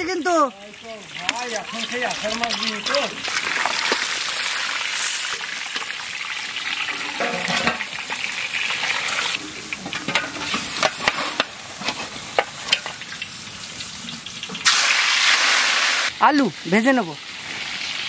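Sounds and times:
oil crackling and popping: 0:00.0 - 0:16.4, 0:17.2 - 0:18.0
fish deep-frying in oil: 0:00.0 - 0:18.0.

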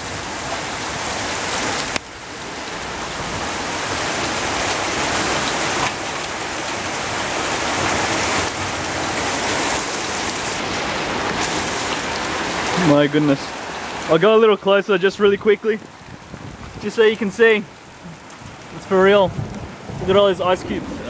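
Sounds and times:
heavy rain and hail: 0:00.0 - 0:21.0.

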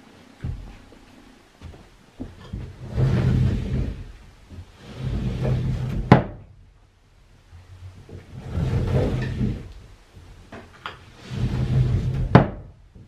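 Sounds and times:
sliding door rumbling on track: 0:02.3 - 0:06.5, 0:07.7 - 0:13.0.

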